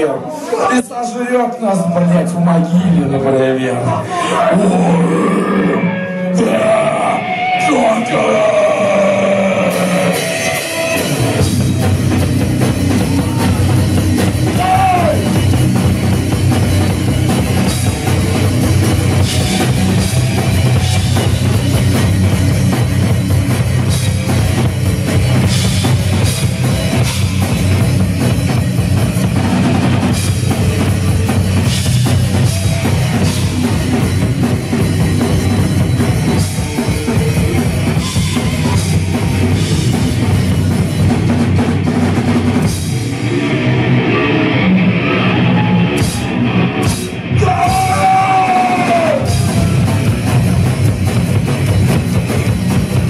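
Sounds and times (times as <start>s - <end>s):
metal band playing: 0.0s - 53.0s.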